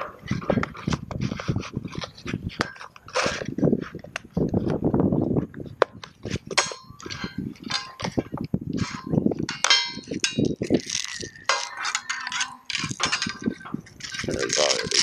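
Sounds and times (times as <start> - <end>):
ringing metallic clinks: 9.5 - 10.6.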